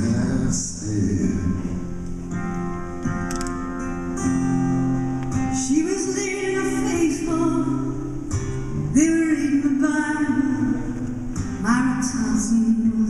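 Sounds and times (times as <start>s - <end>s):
strummed acoustic guitars: 0.0s - 13.0s
person singing: 5.6s - 8.1s, 11.6s - 13.0s.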